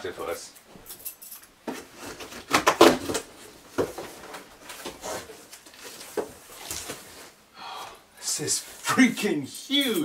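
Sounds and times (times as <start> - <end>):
cardboard scraping and rustling: 1.7 - 7.4.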